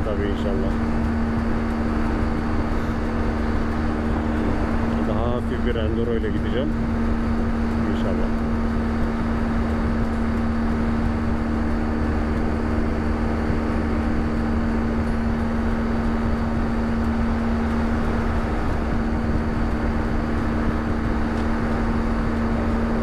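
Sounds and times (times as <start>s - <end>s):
motorcycle engine droning: 0.0s - 23.0s
wind and road noise: 0.0s - 23.0s.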